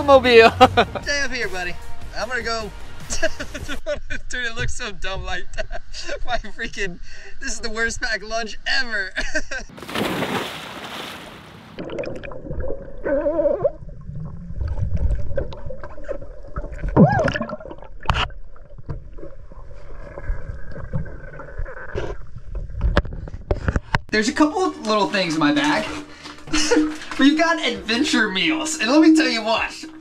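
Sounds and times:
underwater gurgling and bubbling: 11.8 - 23.4.

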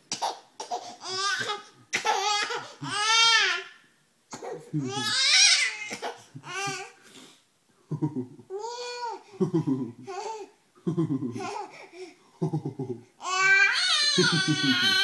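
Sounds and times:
man laughing: 4.8 - 5.1, 7.9 - 8.5, 9.4 - 10.1, 10.8 - 11.5, 12.4 - 13.1, 14.1 - 15.0
infant laughing and squealing: 13.2 - 15.0.

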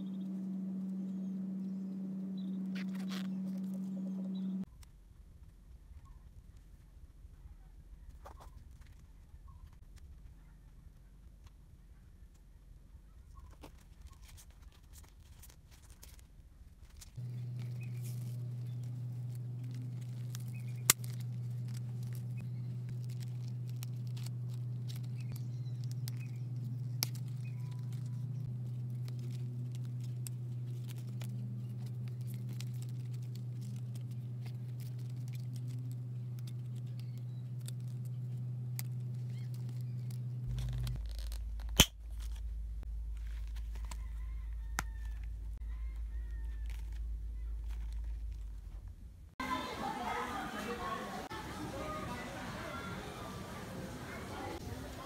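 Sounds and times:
steady low hum: 0.0 - 5.6, 16.4 - 55.0
plastic sleeves crinkling: 13.5 - 49.1.

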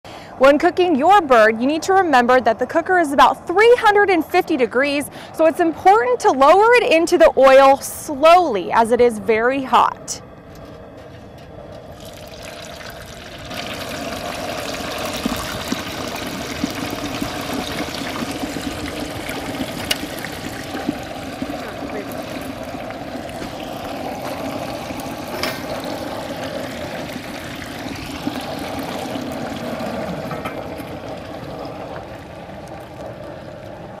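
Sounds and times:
oil popping: 11.7 - 34.0
frying oil bubbling and sizzling: 11.8 - 34.0.

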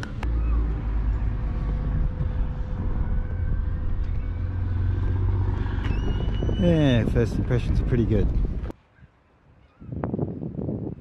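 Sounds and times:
low rumble: 0.0 - 8.7.

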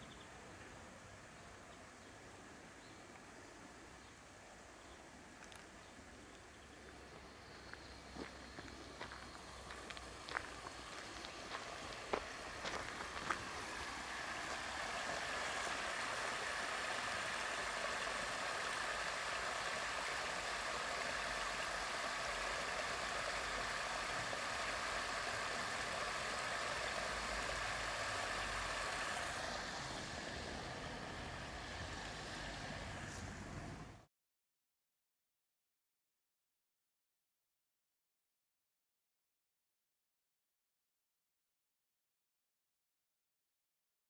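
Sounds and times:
water splashing from hose: 9.1 - 33.3.

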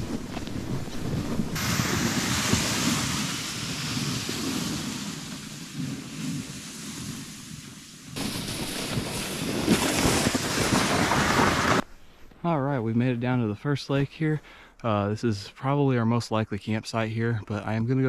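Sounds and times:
wind noise on microphone: 0.0 - 11.8
plastic sled dragged over snow: 0.0 - 11.9.

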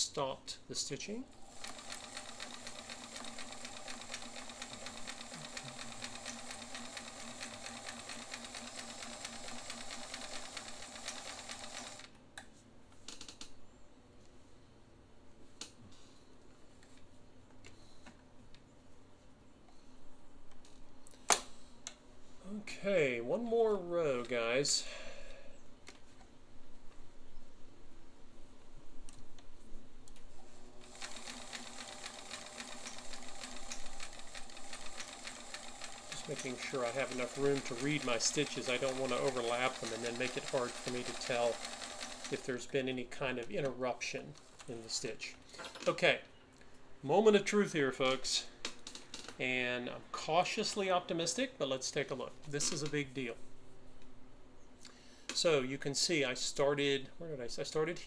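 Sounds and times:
sewing machine stitching: 1.4 - 12.1, 30.8 - 42.6.

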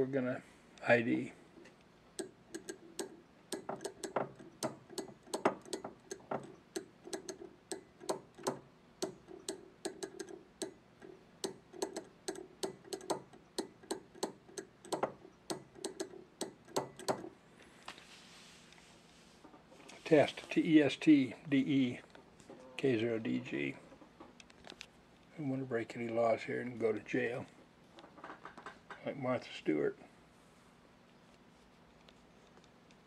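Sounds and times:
telegraph key clicking: 2.2 - 10.8, 11.4 - 17.3.

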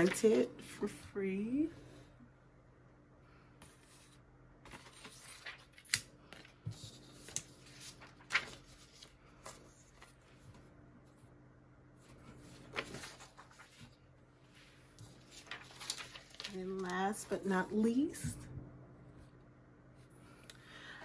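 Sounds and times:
paper rustling and crinkling: 0.0 - 0.5, 3.9 - 10.7, 12.0 - 14.0, 14.9 - 17.4
paper snapping: 5.4 - 6.1.

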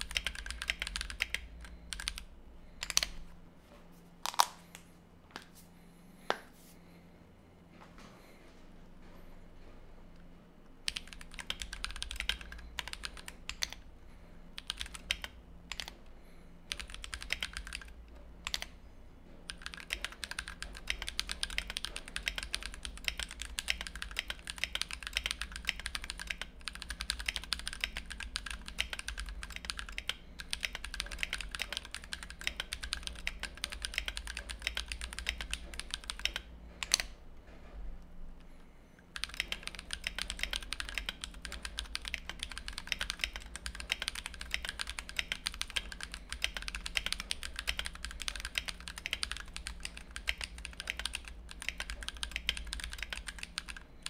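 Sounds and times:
mechanical keyboard typing: 0.0 - 3.2, 10.8 - 13.8, 14.6 - 16.0, 16.7 - 18.8, 19.4 - 37.2, 39.1 - 54.0.

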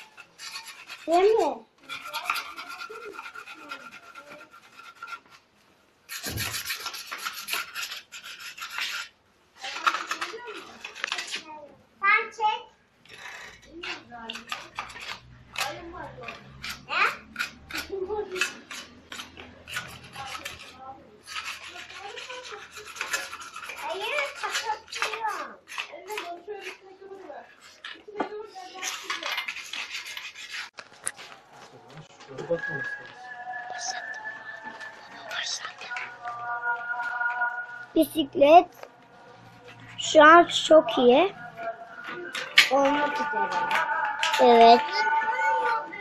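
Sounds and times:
hand scratching bicycle frame: 0.0 - 5.5, 6.1 - 11.5, 13.1 - 31.5
faint voices: 30.9 - 38.2, 38.8 - 46.0.

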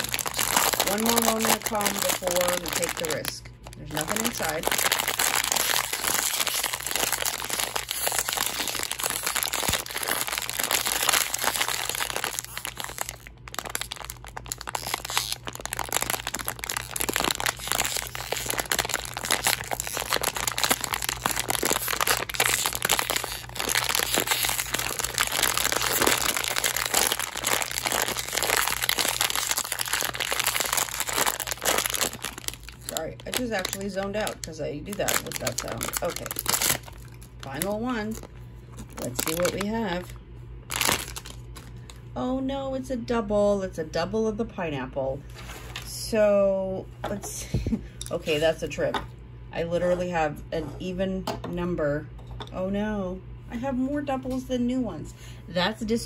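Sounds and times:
plastic bag crinkling: 0.0 - 42.1.

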